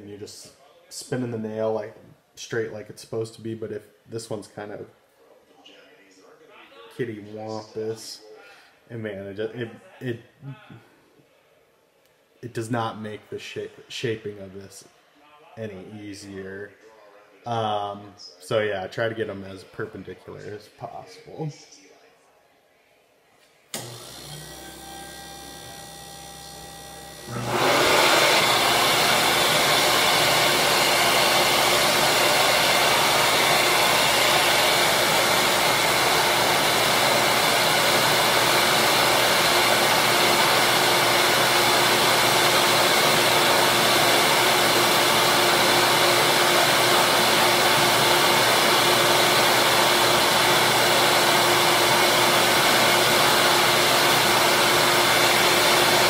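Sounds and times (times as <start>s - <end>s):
electric sander whirring: 23.8s - 56.0s.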